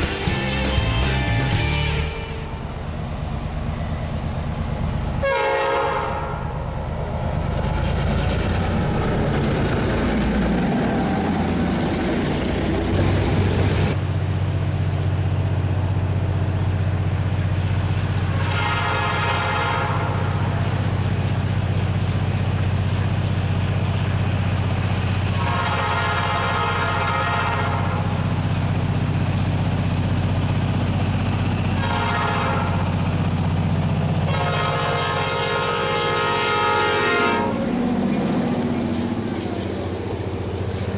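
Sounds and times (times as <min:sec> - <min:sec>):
diesel locomotive engine drone: 0:00.0 - 0:40.9
air horn blasts: 0:00.6 - 0:02.6, 0:05.2 - 0:06.5, 0:18.4 - 0:20.3, 0:25.4 - 0:28.0, 0:31.8 - 0:32.9, 0:34.3 - 0:37.6.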